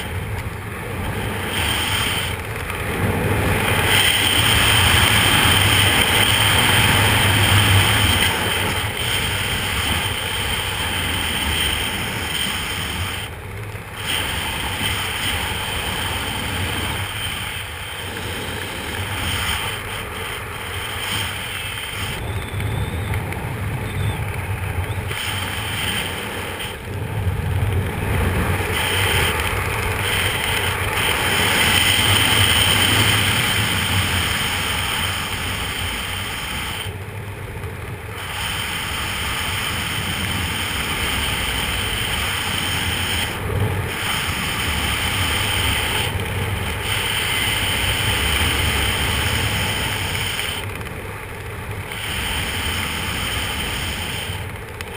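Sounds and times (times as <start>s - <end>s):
wind rushing over microphone: 0.0s - 54.9s.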